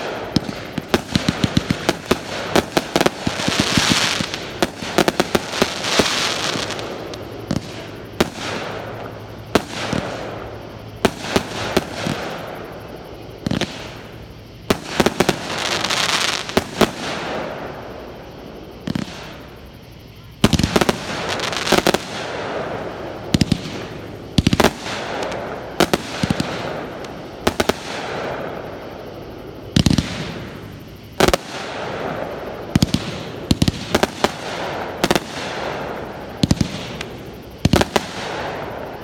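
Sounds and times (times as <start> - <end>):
fireworks bangs and pops: 0.0 - 10.4, 13.4 - 14.1, 14.7 - 17.4, 18.8 - 19.4, 23.3 - 28.5, 29.7 - 30.6, 31.2 - 38.8
fireworks crackling hiss: 0.0 - 39.0.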